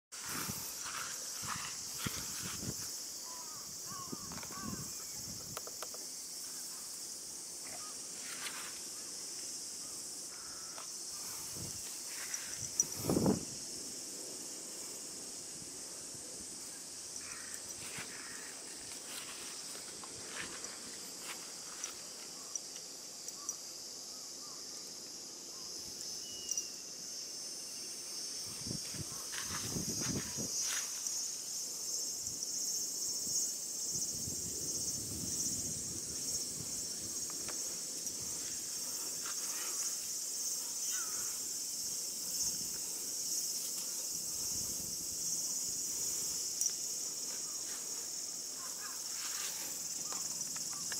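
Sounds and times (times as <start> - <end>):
insects chorus: 0.1 - 50.9
soft rustles in grass: 0.2 - 3.3, 7.6 - 9.8, 10.8 - 22.4, 28.4 - 31.5, 42.5 - 50.8.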